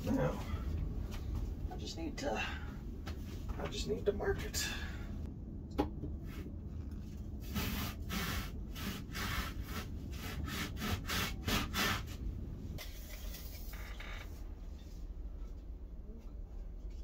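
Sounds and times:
knife sawing through foam: 0:07.5 - 0:12.1.

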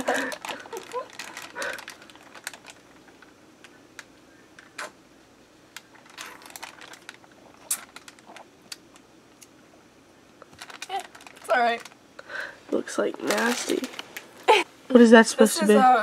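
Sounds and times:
plastic bag crinkling: 0:00.0 - 0:04.8, 0:05.7 - 0:09.0, 0:10.4 - 0:14.6.

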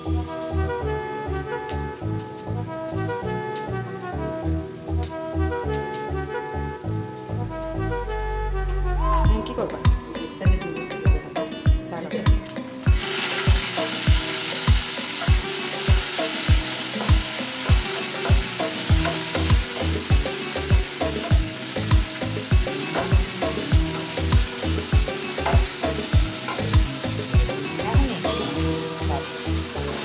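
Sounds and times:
chillies sizzling in oil: 0:00.0 - 0:08.1, 0:09.5 - 0:30.0
deep steady beat: 0:07.5 - 0:28.8.

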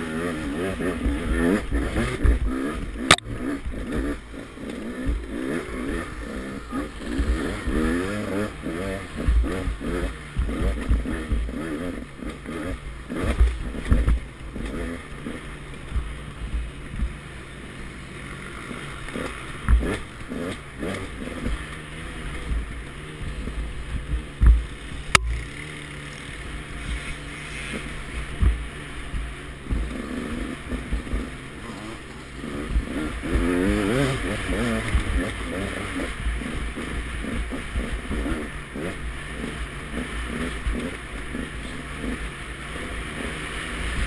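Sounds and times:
dirt bike engine revving: 0:00.0 - 0:44.0
dull thumps from bumps: 0:13.2 - 0:14.3, 0:24.0 - 0:25.4, 0:28.3 - 0:30.0.

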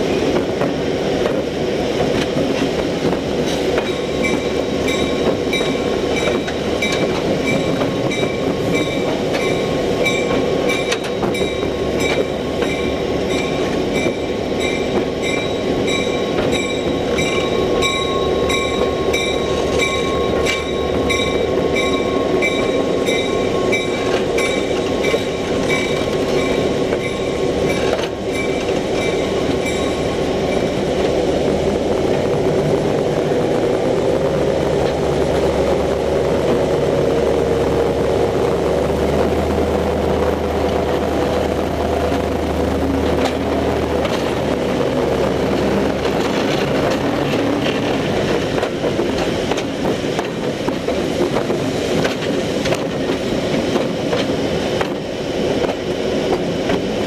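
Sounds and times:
locomotive wheels rumbling on rail: 0:00.0 - 0:57.0
pulsing high ringing: 0:03.9 - 0:31.0.

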